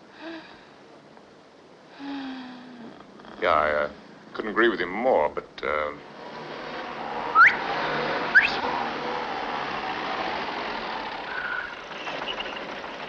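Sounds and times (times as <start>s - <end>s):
car engine driving up: 5.7s - 13.0s
sharp rising whistles: 7.1s - 9.1s, 11.3s - 12.7s.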